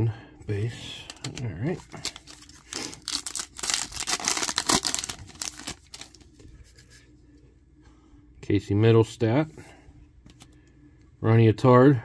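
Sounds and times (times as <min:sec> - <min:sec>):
card pack wrapper tearing: 0:01.0 - 0:06.2.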